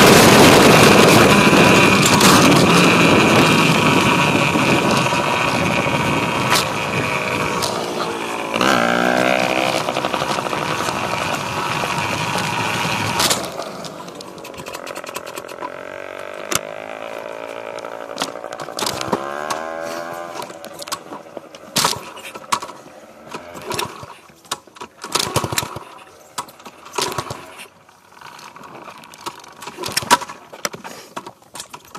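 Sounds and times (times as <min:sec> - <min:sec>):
dirt bike engine revving: 0:00.0 - 0:24.2.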